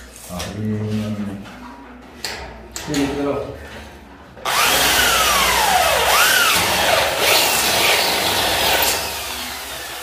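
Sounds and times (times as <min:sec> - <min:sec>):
electric drill boring into concrete: 0:04.5 - 0:10.0.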